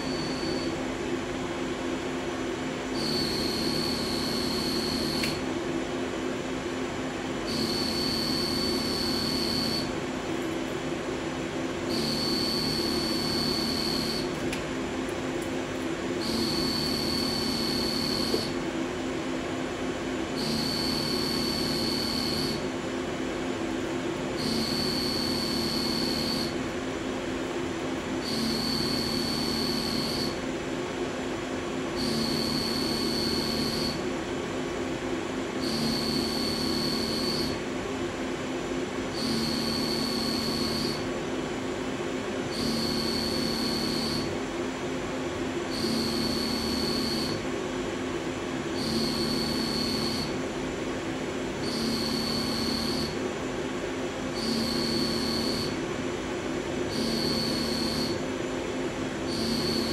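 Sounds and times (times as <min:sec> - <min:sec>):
high-pitched milling tool whine: 0:00.0 - 0:00.8, 0:03.0 - 0:05.4, 0:07.5 - 0:10.0, 0:11.9 - 0:14.3, 0:16.2 - 0:18.6, 0:20.3 - 0:22.7, 0:24.3 - 0:26.6, 0:28.2 - 0:30.4, 0:32.0 - 0:34.0, 0:35.6 - 0:37.6, 0:39.1 - 0:41.1, 0:42.5 - 0:44.3, 0:45.7 - 0:47.4, 0:48.8 - 0:50.4, 0:51.6 - 0:53.2, 0:54.4 - 0:55.8, 0:56.9 - 0:58.2, 0:59.3 - 0:59.9
machine humming: 0:00.0 - 0:02.2, 0:02.8 - 0:06.1, 0:06.8 - 0:38.0, 0:42.2 - 0:44.4, 0:45.7 - 0:51.0, 0:51.6 - 0:53.4, 0:54.4 - 0:55.8, 0:59.3 - 0:59.9.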